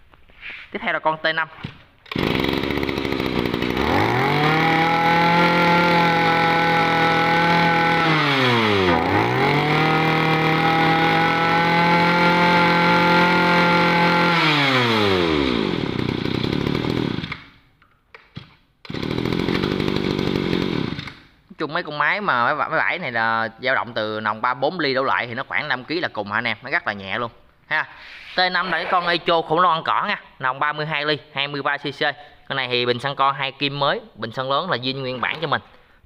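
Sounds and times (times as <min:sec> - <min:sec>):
small two-stroke engine revving: 0:02.1 - 0:17.4, 0:18.9 - 0:21.2.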